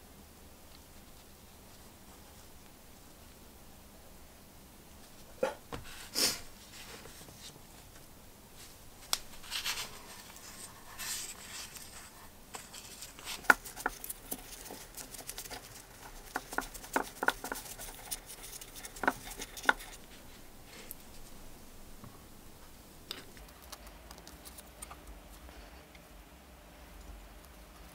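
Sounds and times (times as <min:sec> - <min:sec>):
gloves rustling and rubbing: 0:08.5 - 0:21.4.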